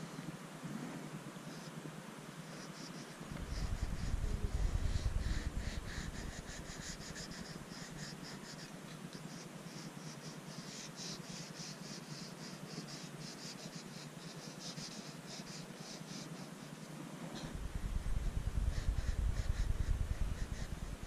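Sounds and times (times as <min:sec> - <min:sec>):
crayon scratching on paper: 0:02.5 - 0:17.6.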